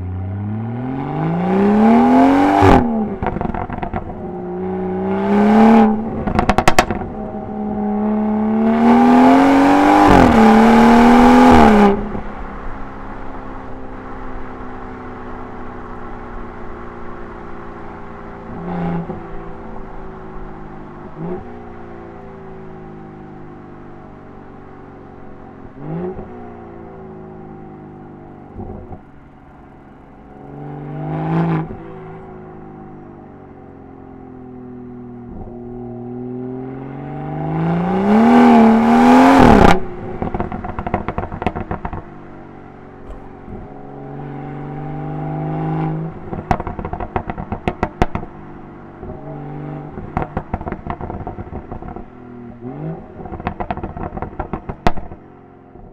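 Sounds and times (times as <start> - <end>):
car engine revving: 0.0 - 55.9
exhaust crackles and pops: 6.1 - 7.2, 39.4 - 43.9, 46.1 - 49.2, 49.9 - 52.2, 53.0 - 55.9.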